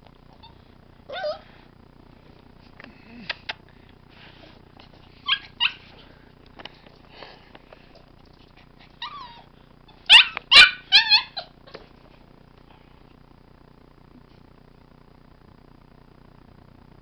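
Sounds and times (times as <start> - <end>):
puppy yapping: 0.4 - 1.4, 5.2 - 6.0, 9.0 - 11.8.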